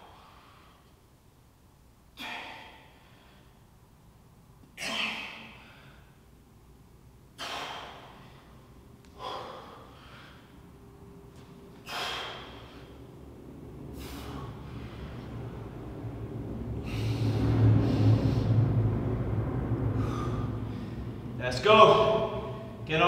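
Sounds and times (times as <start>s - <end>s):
low drone: 2.1s - 23.0s
man exhaling hard: 2.2s - 3.6s, 4.8s - 6.2s, 7.4s - 10.6s, 11.8s - 13.0s, 13.9s - 15.2s, 16.8s - 18.8s, 19.8s - 21.3s.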